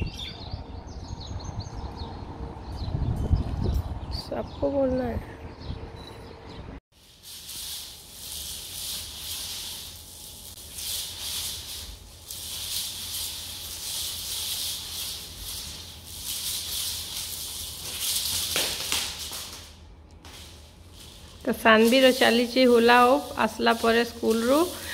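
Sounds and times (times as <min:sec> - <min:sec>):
beads rattling in hula hoop: 0:06.9 - 0:24.9
hoop clattering on tiled floor: 0:07.2 - 0:24.9.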